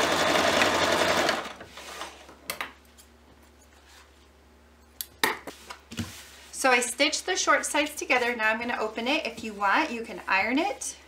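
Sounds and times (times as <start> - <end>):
sewing machine stitching: 0.0 - 1.6.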